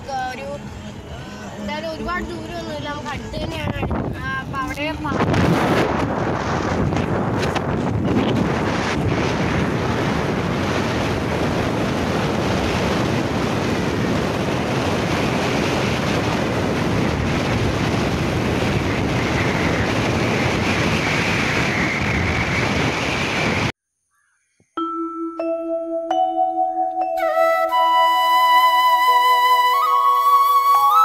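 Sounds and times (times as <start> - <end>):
car road noise: 0.0 - 23.8
wind buffeting microphone: 0.0 - 23.8.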